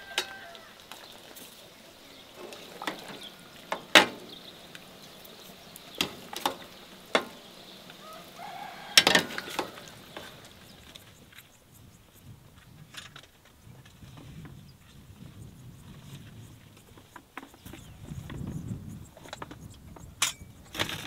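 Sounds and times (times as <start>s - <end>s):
sharp knocks and clicks: 5.9s - 7.5s.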